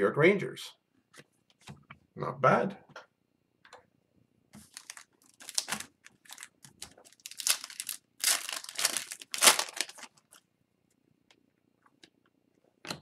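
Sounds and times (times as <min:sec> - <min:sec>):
foil wrapper crinkling: 0:04.6 - 0:10.4.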